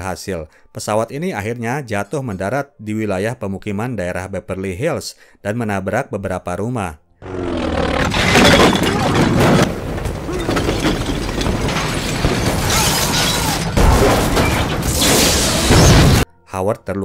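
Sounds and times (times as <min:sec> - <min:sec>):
smashing and shattering crash: 0:08.0 - 0:16.2.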